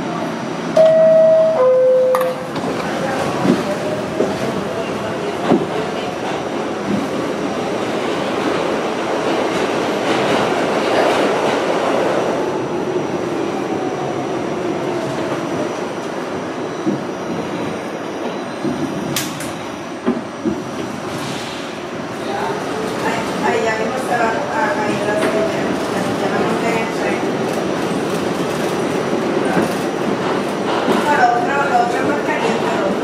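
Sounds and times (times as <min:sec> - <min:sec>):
subway car rumble: 0:00.0 - 0:33.0.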